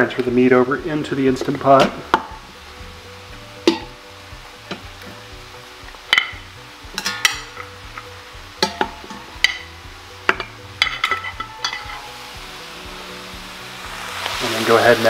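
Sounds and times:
metal tongs clinking on steel pot: 3.6s - 4.0s, 6.1s - 9.7s, 10.3s - 12.1s.

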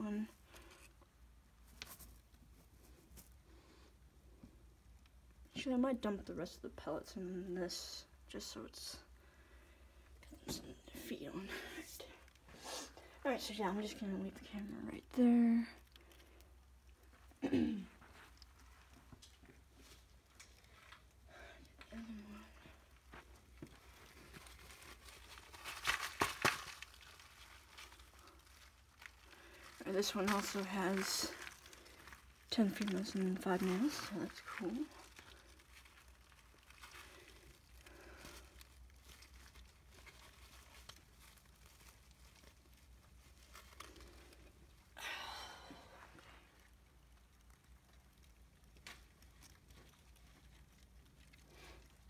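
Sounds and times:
packaging rustling and crinkling: 1.6s - 3.5s, 22.0s - 45.0s, 45.8s - 52.0s.

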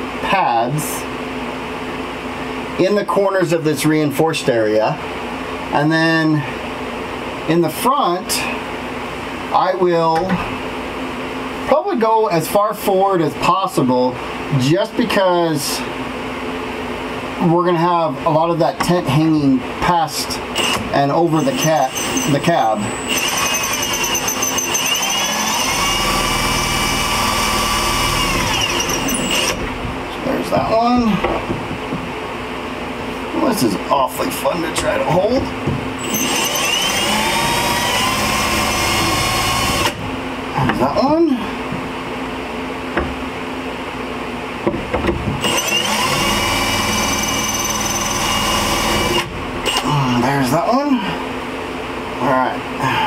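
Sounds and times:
cordless drill whining: 20.6s - 20.8s, 21.4s - 29.7s, 36.0s - 40.0s, 45.4s - 50.3s.

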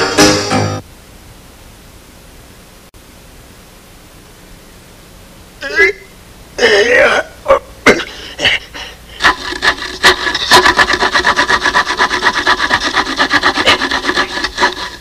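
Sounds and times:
handsaw sawing wood: 9.2s - 15.0s.

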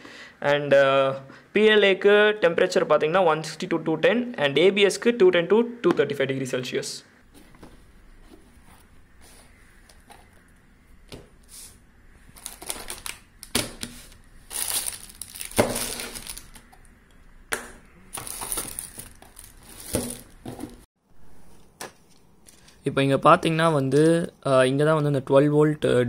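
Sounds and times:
plastic wrap rustling: 12.3s - 16.7s, 18.1s - 20.9s.

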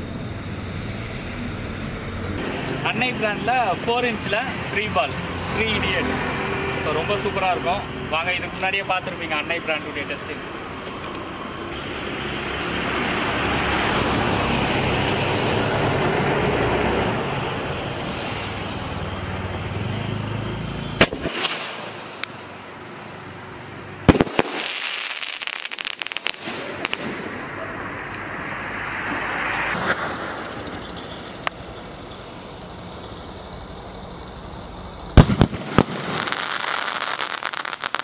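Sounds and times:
firework fuse hiss: 2.4s - 31.5s, 35.2s - 38.0s
firework shells crackling: 20.6s - 31.6s, 35.1s - 38.0s
firework bang: 21.0s - 22.2s, 24.1s - 27.7s, 29.0s - 31.5s, 35.2s - 38.0s.

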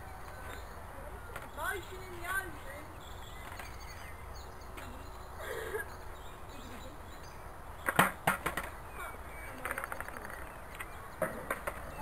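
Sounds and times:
skateboard clacking on concrete: 7.8s - 8.8s, 9.5s - 12.0s
skateboard wheels rattling: 7.8s - 8.8s, 9.5s - 12.0s.

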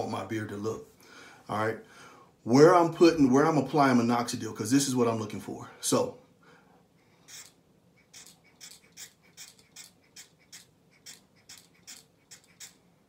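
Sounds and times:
pump nozzle puffing: 7.3s - 12.8s.

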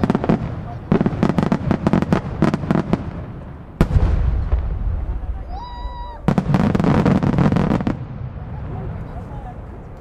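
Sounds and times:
firework boom with rumbling echo: 0.0s - 9.5s
rising firework whistle: 5.4s - 7.5s.

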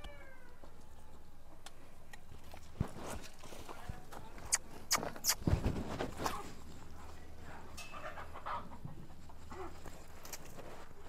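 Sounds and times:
hoof pick scraping hoof: 2.3s - 11.0s.

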